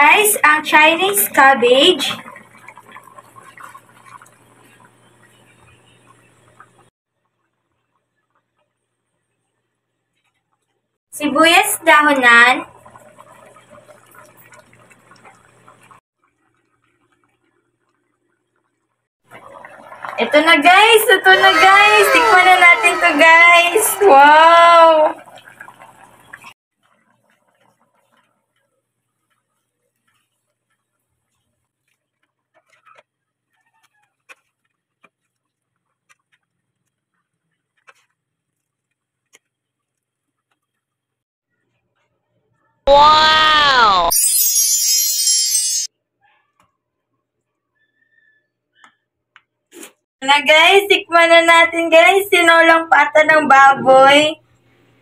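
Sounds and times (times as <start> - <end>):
broth simmering with bubbles popping: 2.0 - 11.0, 12.0 - 21.1, 24.9 - 41.2.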